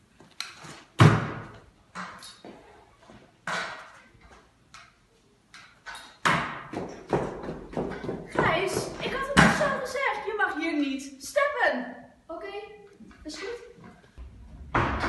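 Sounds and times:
scooter clattering on hard floor: 0:05.9 - 0:09.8.

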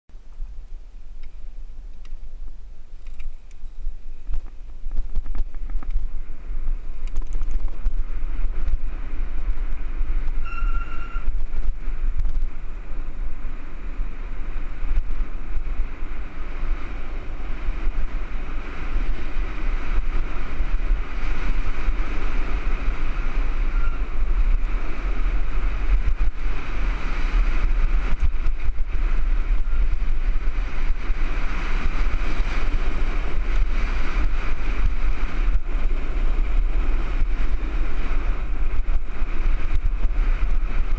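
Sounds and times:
bike tyres rolling on dirt: 0:00.1 - 0:40.9
wind buffeting microphone: 0:00.2 - 0:40.9
high-pitched squeal: 0:10.3 - 0:11.4, 0:23.1 - 0:24.3.

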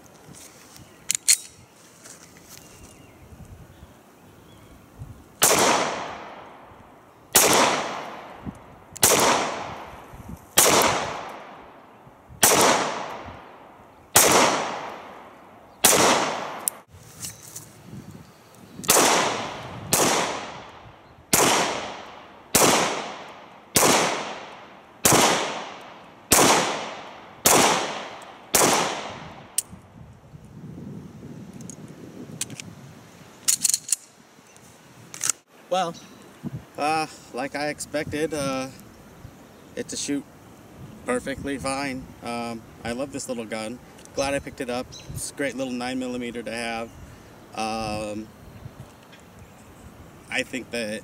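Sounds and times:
pistol shots with echo: 0:05.4 - 0:06.5, 0:07.3 - 0:08.4, 0:09.0 - 0:09.9, 0:10.6 - 0:11.7, 0:12.4 - 0:16.8, 0:18.9 - 0:29.5.

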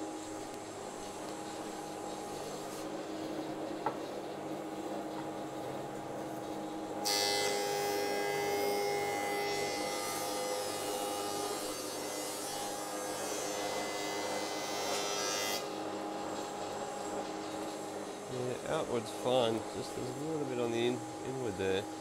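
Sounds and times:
thicknesser planer running: 0:06.9 - 0:22.0.

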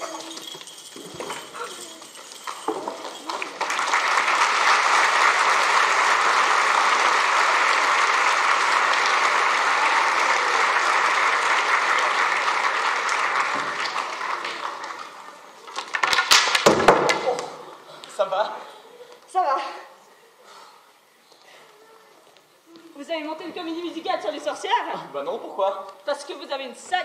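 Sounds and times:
brooms dropping on wooden floor: 0:00.0 - 0:03.6, 0:15.6 - 0:17.6
audience applauding: 0:02.5 - 0:16.6.

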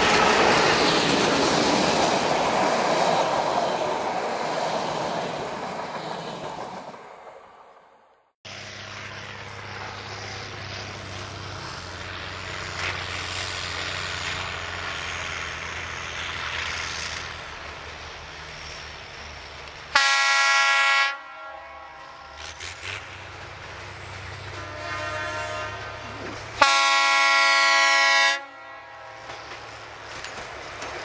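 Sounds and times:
railcar engine hum: 0:00.0 - 0:31.0
railcar horn blast: 0:19.9 - 0:23.0, 0:24.5 - 0:29.7.

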